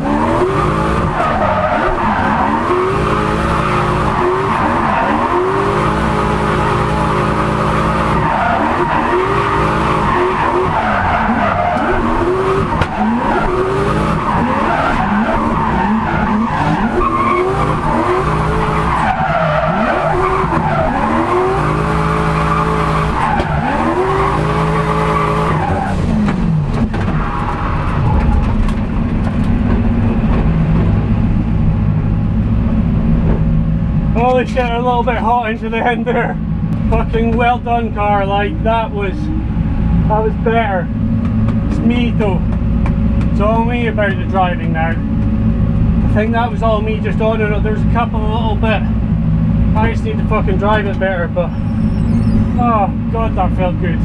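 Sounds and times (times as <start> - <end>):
car engine revving: 0.0 - 54.0
tyres squealing: 51.5 - 52.6.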